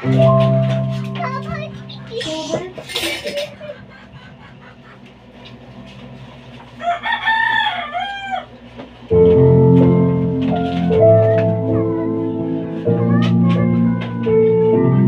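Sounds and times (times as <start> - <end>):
rooster crowing: 6.7 - 8.6.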